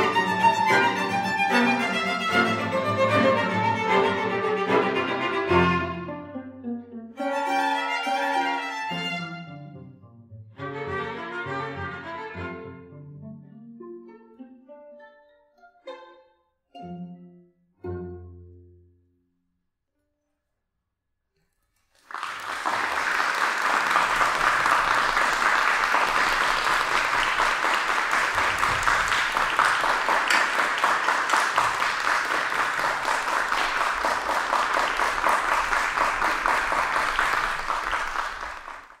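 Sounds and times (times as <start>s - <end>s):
audience applause: 21.9s - 39.0s.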